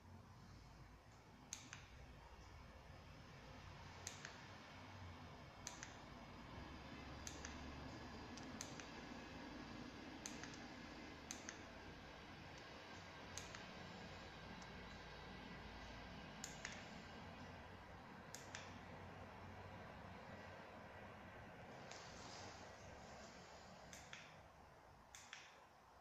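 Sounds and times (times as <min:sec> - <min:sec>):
low steady hum: 0:00.0 - 0:26.0
sharp switching clicks: 0:01.5 - 0:02.0, 0:04.0 - 0:04.4, 0:05.6 - 0:06.1, 0:07.2 - 0:07.6, 0:08.4 - 0:09.0, 0:10.2 - 0:10.7, 0:11.3 - 0:11.7, 0:13.3 - 0:13.7, 0:16.4 - 0:17.0, 0:18.3 - 0:18.8, 0:23.9 - 0:24.4, 0:25.1 - 0:25.7.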